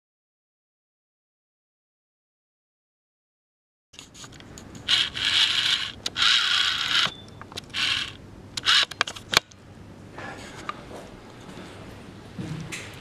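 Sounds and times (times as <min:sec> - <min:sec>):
sharp clicks: 0:04.3 - 0:09.6.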